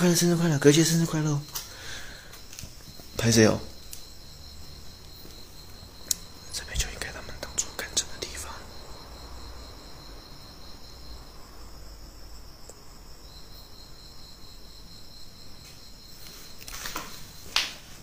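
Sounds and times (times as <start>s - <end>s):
crickets chirping: 0.0s - 18.0s
short scuffing noises: 16.2s - 17.9s.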